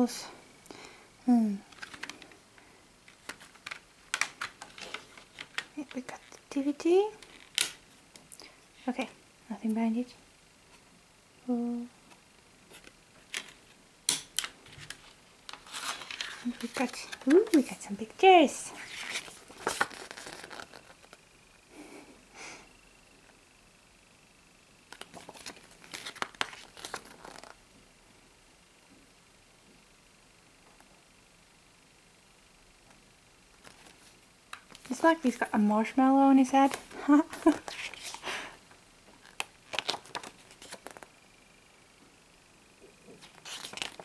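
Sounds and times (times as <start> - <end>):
paper booklet rustling: 1.7 - 2.4, 3.1 - 6.5, 14.4 - 21.2, 24.9 - 27.6, 33.6 - 35.7, 36.4 - 38.5, 39.2 - 41.1, 43.1 - 44.0.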